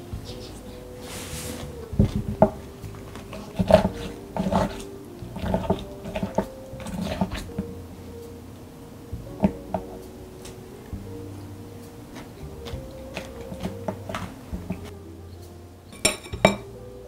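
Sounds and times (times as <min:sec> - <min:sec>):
soft background music: 0:00.0 - 0:17.0
wooden spoon scraping a glass: 0:03.2 - 0:07.6.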